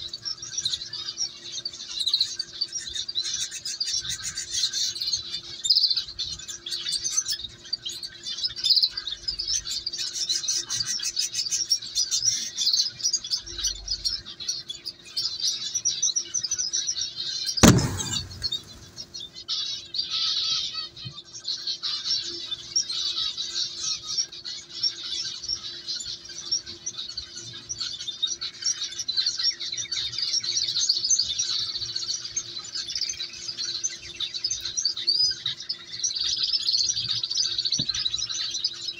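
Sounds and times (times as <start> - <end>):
chicks cheeping: 0.0 - 19.4, 20.0 - 38.9
sharp knock: 17.6 - 19.1.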